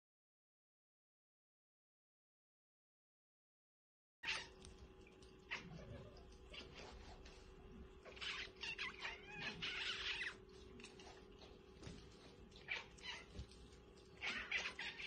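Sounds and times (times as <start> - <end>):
cats mewing: 4.2 - 7.2, 7.9 - 11.2, 12.1 - 15.0
faint steady hum: 4.2 - 15.0.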